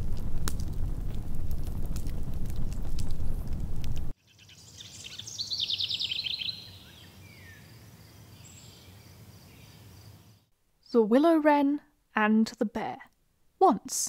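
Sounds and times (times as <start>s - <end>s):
fire crackling: 0.0s - 4.2s.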